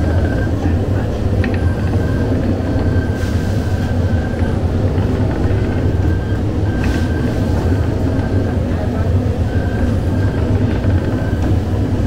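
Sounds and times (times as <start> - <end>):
dough-dividing machine rumbling: 3.8 - 12.0.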